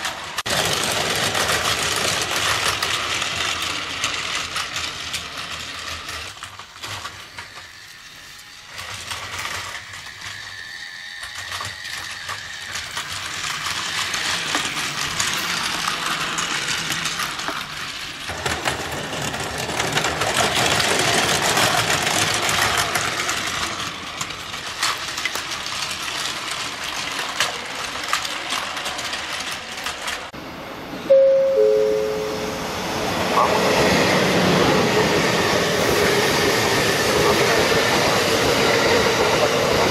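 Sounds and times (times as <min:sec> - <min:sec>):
toy train motor whirring: 0:00.0 - 0:30.3
loud steady tone: 0:31.1 - 0:33.7.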